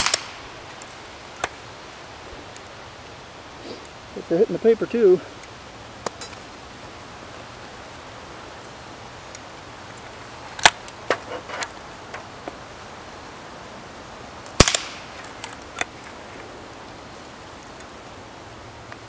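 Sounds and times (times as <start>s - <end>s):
rifle shots: 0.0s - 0.4s, 14.6s - 15.1s.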